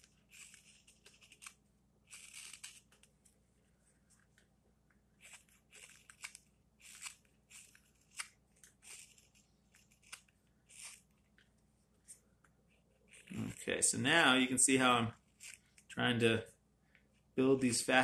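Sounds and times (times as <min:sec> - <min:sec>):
knife cutting wood: 0:00.0 - 0:03.1, 0:05.2 - 0:11.1.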